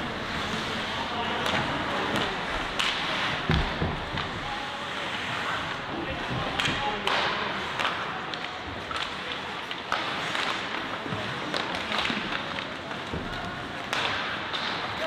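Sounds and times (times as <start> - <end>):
steady rink hiss: 0.0 - 8.2
spectators chatting: 0.0 - 15.0
hockey sticks knocking puck: 0.5 - 4.5, 6.1 - 15.0.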